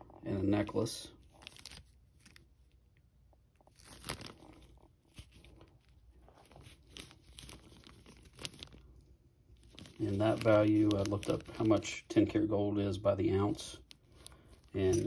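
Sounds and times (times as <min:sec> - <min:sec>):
plastic bag crinkling: 0:00.6 - 0:02.8, 0:03.5 - 0:15.0.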